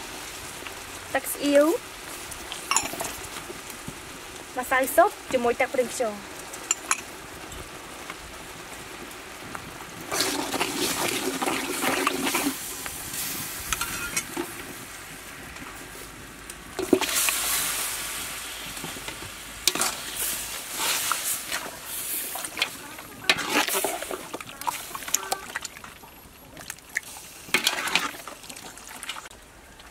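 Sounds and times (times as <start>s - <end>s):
sauce bubbling and sizzling: 0.0s - 29.9s
ladle stirring in pot: 10.1s - 12.7s, 13.7s - 14.5s, 16.8s - 17.8s, 18.8s - 29.3s.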